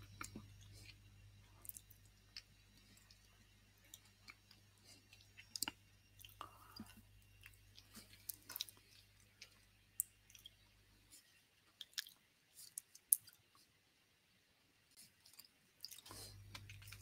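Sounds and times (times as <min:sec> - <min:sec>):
low steady hum: 0:00.0 - 0:17.0
faint small clicks and crackles: 0:14.9 - 0:17.0.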